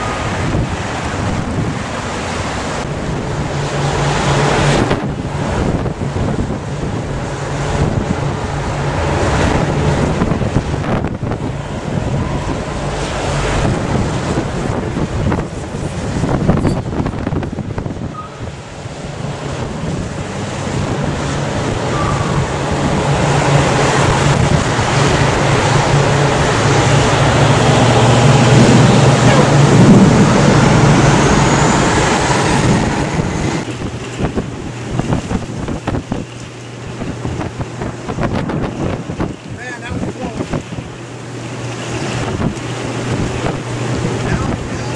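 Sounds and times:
gusty wind buffeting microphone: 0.0s - 44.9s.

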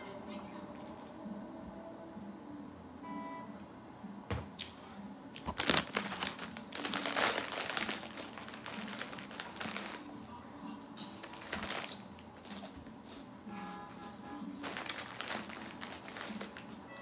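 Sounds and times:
crinkling handling noise: 5.4s - 10.3s, 11.0s - 17.0s.

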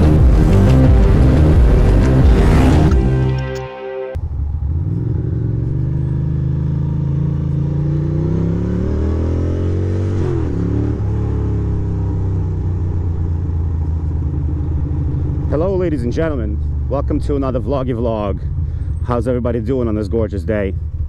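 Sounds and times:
motorcycle engine accelerating: 0.0s - 3.4s, 4.2s - 21.0s.

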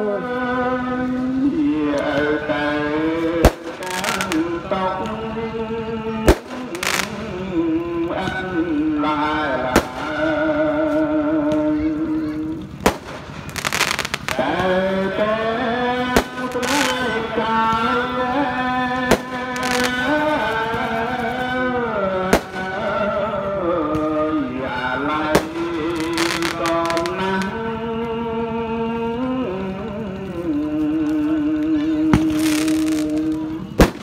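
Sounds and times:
fireworks bangs: 3.0s - 5.3s, 6.2s - 8.6s, 9.5s - 10.7s, 12.6s - 23.1s, 25.2s - 27.5s, 32.1s - 34.0s
hissing crackle: 3.5s - 5.2s, 12.5s - 14.7s, 25.4s - 27.5s.

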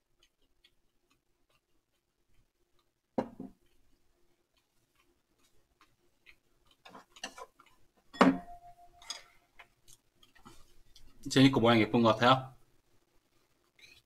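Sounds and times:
tableware knocking on table: 3.2s - 3.5s, 8.2s - 8.7s
glass bottle set down: 8.2s - 8.6s.

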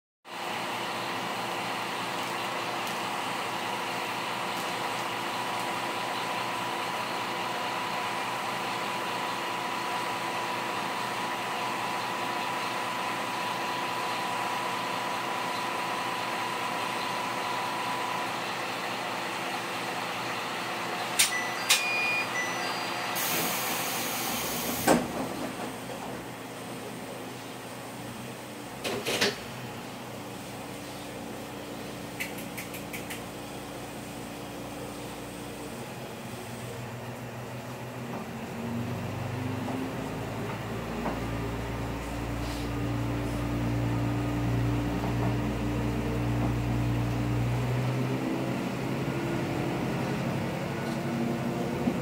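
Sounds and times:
diesel railcar engine idling: 0.3s - 28.8s, 29.4s - 52.0s
short beeps: 21.2s - 23.2s
thin high tone: 21.3s - 23.1s
air hiss: 23.2s - 25.0s
sharp clicks: 32.2s - 33.3s.

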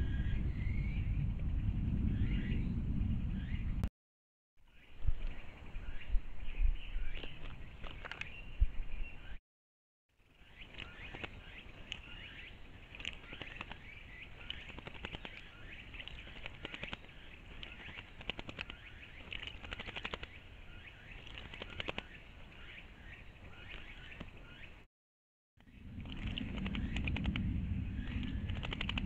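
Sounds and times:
faint bird chirps: 2.1s - 3.8s, 4.6s - 9.4s, 10.3s - 24.9s
bird wing-flapping and splashing: 7.0s - 8.5s, 10.3s - 24.7s, 25.6s - 29.0s.

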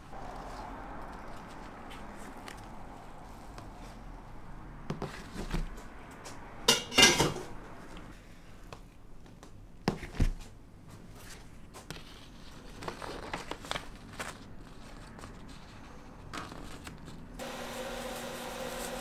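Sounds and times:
cookware clattering: 6.7s - 7.5s
soft handling of cookware: 6.7s - 9.0s.

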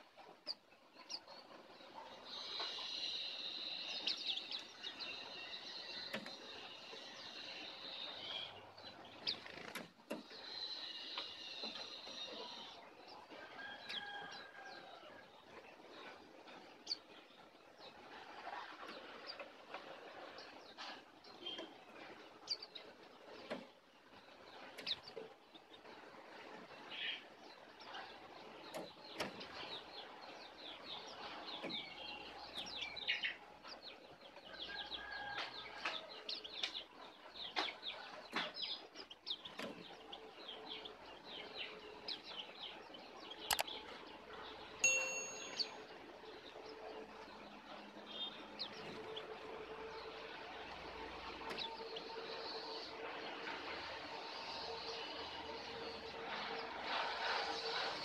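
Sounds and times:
birds chirping: 0.0s - 14.3s, 26.6s - 58.0s
sharp click: 43.5s - 43.7s
short ringing ding: 44.8s - 45.8s.

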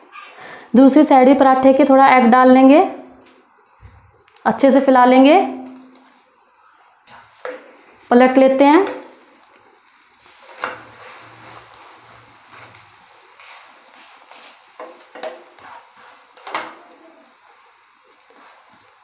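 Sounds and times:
food sizzling in oil: 0.1s - 19.0s
spatula scraping a pan: 9.5s - 16.8s.

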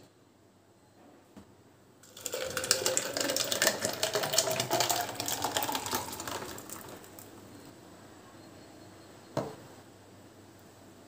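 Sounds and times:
drink pouring into plastic tumbler: 2.0s - 7.4s
ice crackling and clinking: 2.1s - 7.3s.

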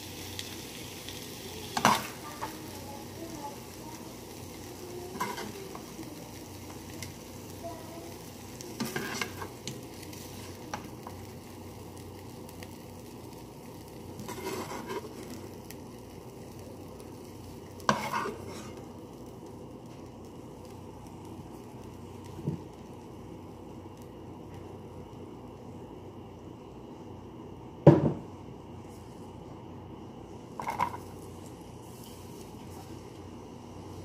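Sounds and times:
chicken sizzling in hot oil: 0.0s - 26.0s, 30.3s - 34.0s
metal spoon scraping a pan: 5.1s - 5.6s, 8.8s - 9.5s, 14.2s - 15.2s, 17.9s - 18.8s.

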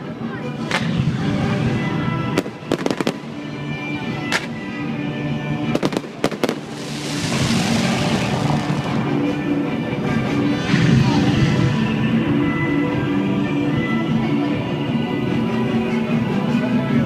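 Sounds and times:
fireworks bangs: 2.4s - 3.3s, 5.7s - 9.5s
fireworks crackling hiss: 5.8s - 12.7s
show music: 5.8s - 13.9s.

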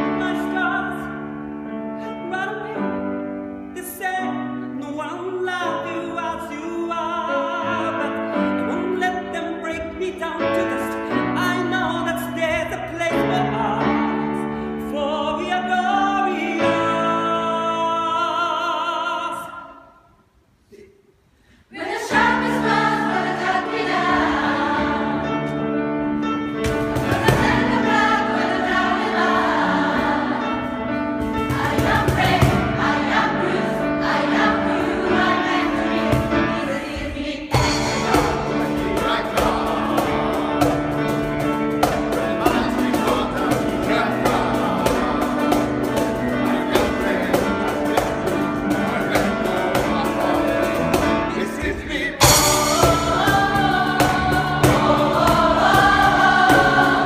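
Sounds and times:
piano: 0.0s - 57.0s
gospel choir singing: 21.6s - 57.0s
cajon strikes: 26.6s - 28.6s, 37.5s - 51.2s.

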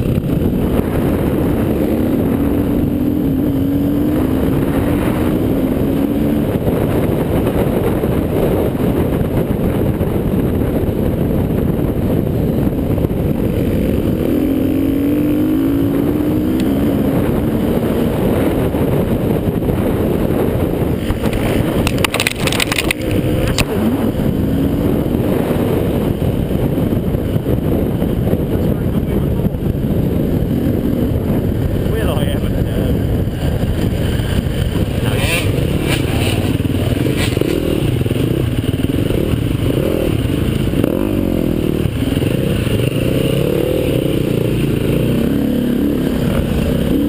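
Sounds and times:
dirt bike engine revving: 0.0s - 9.8s, 12.1s - 28.0s, 29.0s - 47.0s
sharp clicks: 21.0s - 23.8s.

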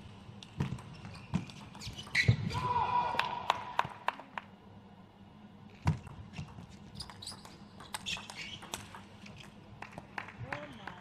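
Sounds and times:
shoe squeaks: 0.9s - 2.5s, 6.3s - 8.8s.

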